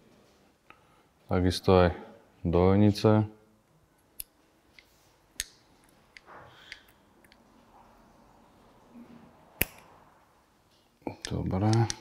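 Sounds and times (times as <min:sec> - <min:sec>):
sharp metal clicks: 0:11.2 - 0:12.0.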